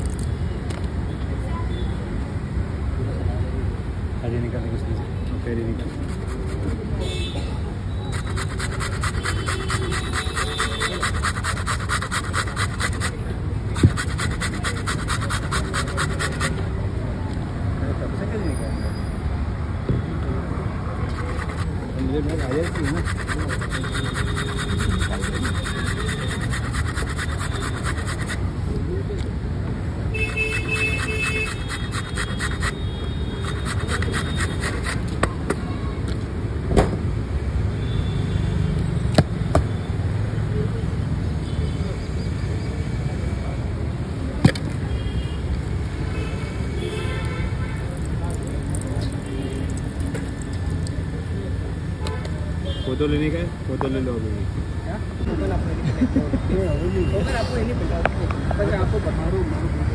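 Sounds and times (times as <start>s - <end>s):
low rumble of traffic: 0.0s - 59.9s
low street hum: 0.0s - 59.9s
vegetable scratching on metal grater: 5.8s - 6.9s, 8.1s - 16.6s, 21.1s - 28.4s, 30.2s - 35.2s.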